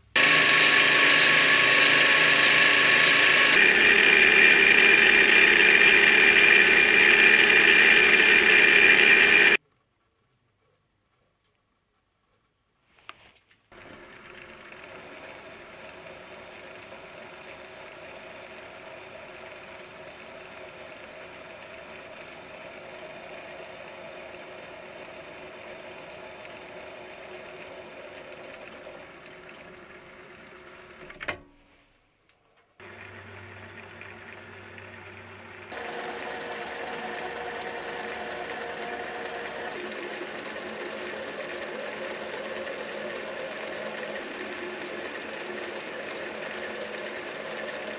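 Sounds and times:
lathe cutting metal: 0.0s - 9.6s, 35.7s - 47.9s.

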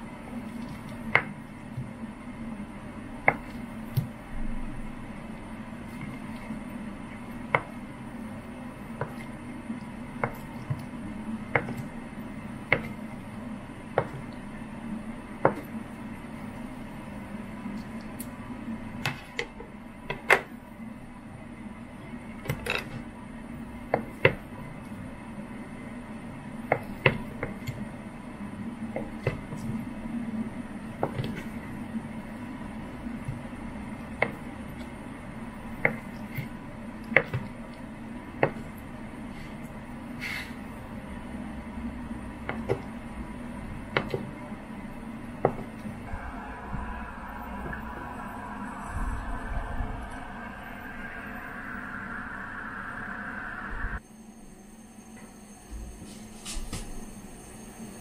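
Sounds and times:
steady low hum: 0.0s - 58.0s
low hum: 40.7s - 56.0s.

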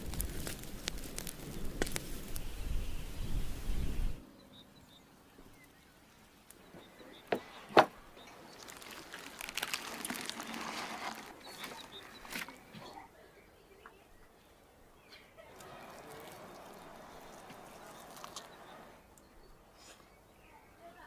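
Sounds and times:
wood fire crackling: 0.0s - 4.2s, 5.5s - 13.0s, 15.3s - 19.7s
meat tearing: 8.5s - 12.6s, 15.5s - 18.7s.

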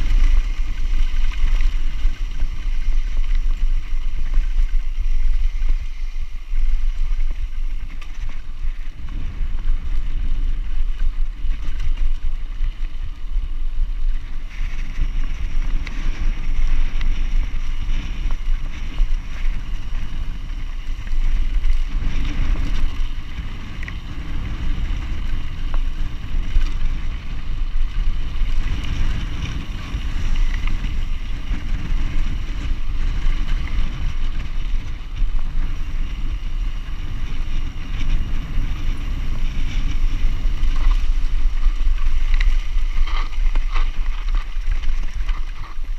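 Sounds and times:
tyres rumbling on gravel: 0.0s - 45.9s
wind buffeting microphone: 0.0s - 45.9s.

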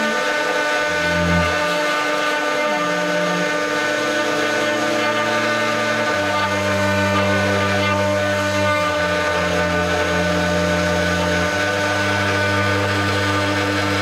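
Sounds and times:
router spindle carving wood: 0.0s - 14.0s.

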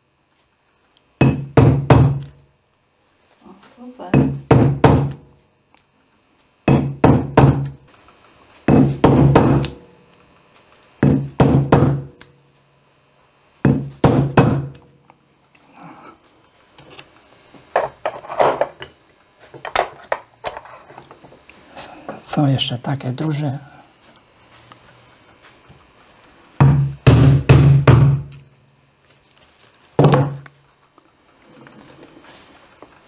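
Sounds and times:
mallet striking hole punch: 1.2s - 2.3s, 6.7s - 7.8s, 8.7s - 9.8s, 11.0s - 12.1s, 13.7s - 14.8s, 26.6s - 28.3s.

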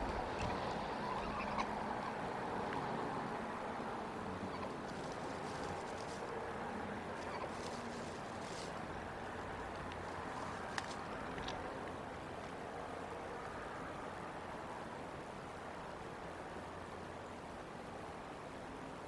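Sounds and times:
faint high bird calls: 0.0s - 2.9s, 4.1s - 6.4s, 7.0s - 8.8s
outdoor hiss and low rumble: 0.0s - 19.0s.

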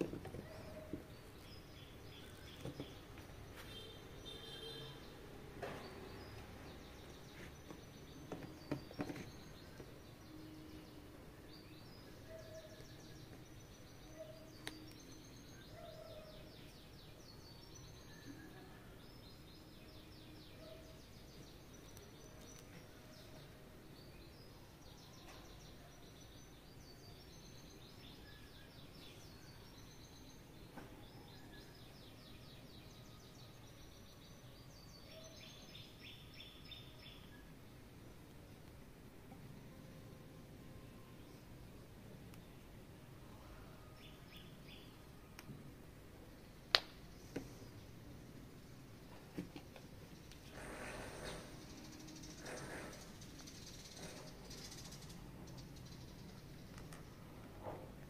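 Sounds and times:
birds chirping and trilling: 0.1s - 37.8s, 50.0s - 57.3s.

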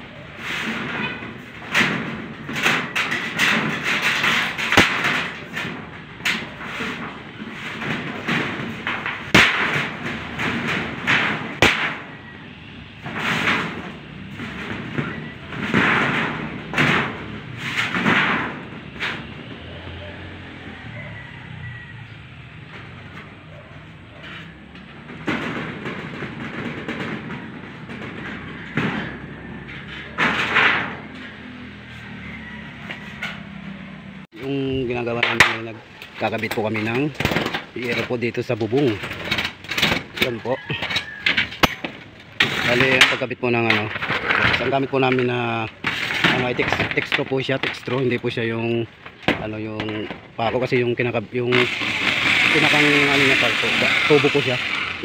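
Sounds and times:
metal sheet scraping: 0.0s - 19.7s, 22.0s - 55.0s
sharp metal knocks: 0.7s - 19.4s, 34.4s - 55.0s.

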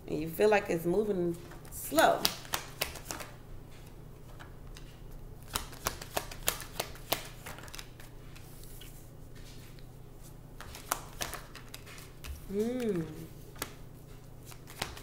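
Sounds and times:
cards rustling: 2.0s - 3.4s, 4.2s - 9.8s, 10.6s - 15.0s.

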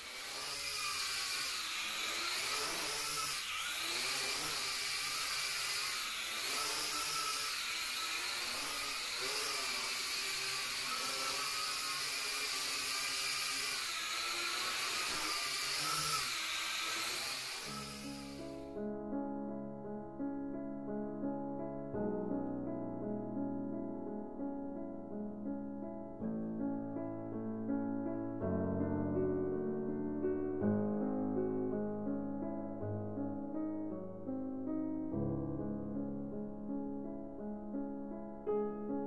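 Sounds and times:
drone motors whining: 0.0s - 18.6s.

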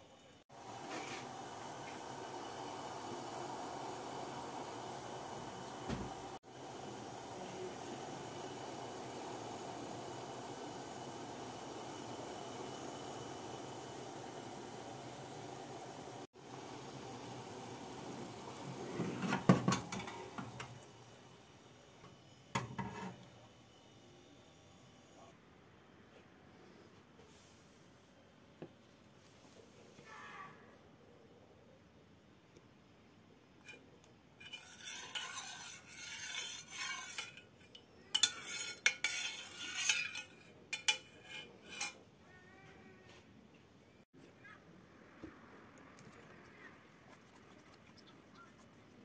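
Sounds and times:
liquid simmering hiss: 0.0s - 24.6s
pot clanking on metal grate: 18.9s - 20.8s, 22.5s - 23.2s, 34.4s - 42.0s.

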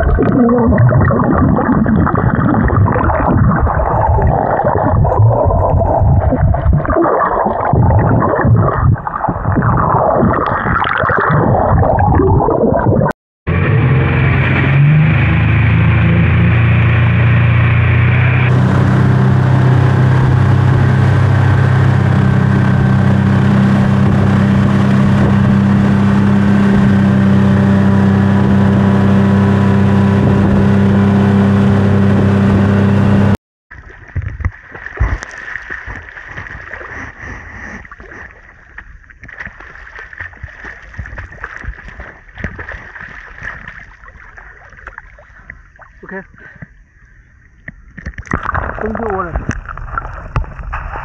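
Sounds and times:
water lapping and sloshing: 0.0s - 12.0s, 33.7s - 51.0s
rush of boat wake: 13.5s - 33.4s
motorboat engine running: 13.5s - 34.1s
swimming splashes: 33.7s - 46.4s, 48.1s - 51.0s.

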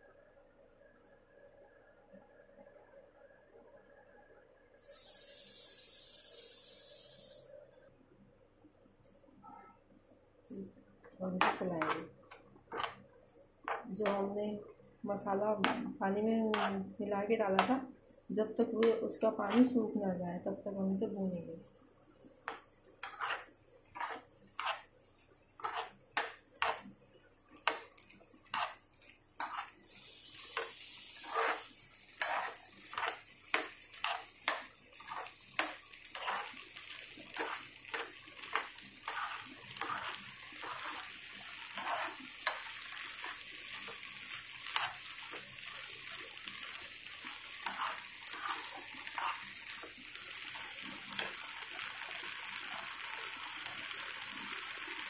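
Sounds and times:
steady sizzle: 4.6s - 7.6s, 9.0s - 55.0s
spatula scraping frying pan: 11.4s - 12.1s, 16.5s - 16.9s, 22.5s - 24.9s, 25.6s - 26.9s, 27.6s - 45.5s, 46.6s - 51.4s.

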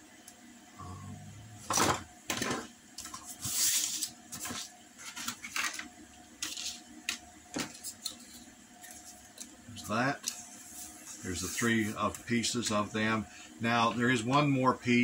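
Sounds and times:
card sliding and rustling: 3.1s - 6.8s.

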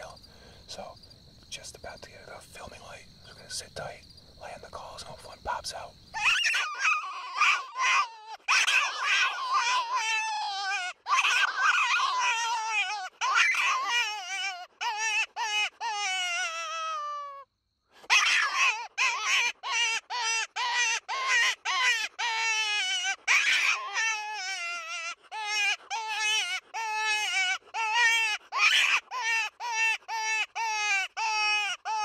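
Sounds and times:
predator call wavering cries: 6.1s - 17.4s, 18.1s - 32.0s.

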